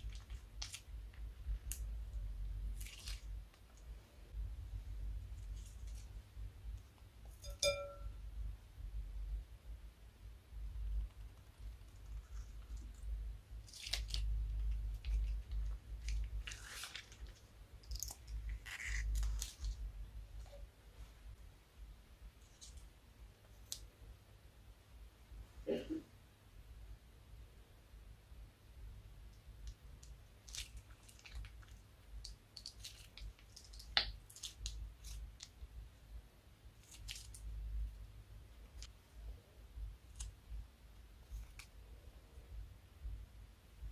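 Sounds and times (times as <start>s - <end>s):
slime squishing and crackling: 0.0s - 3.9s, 11.1s - 20.6s, 29.7s - 35.7s, 36.7s - 37.6s.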